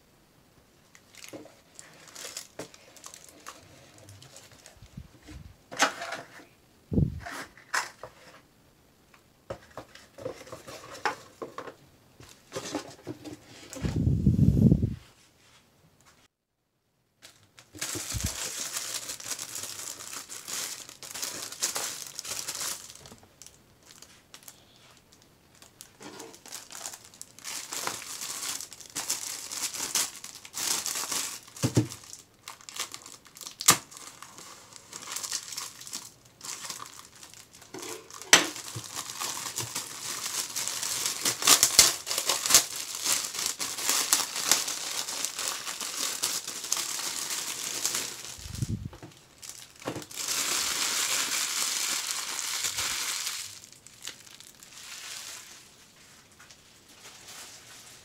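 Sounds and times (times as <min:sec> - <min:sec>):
plastic wrap snapping: 0:00.9 - 0:04.8, 0:17.2 - 0:24.5, 0:25.5 - 0:55.5
plastic wrap crinkling and tearing: 0:00.9 - 0:05.0, 0:17.2 - 0:58.0.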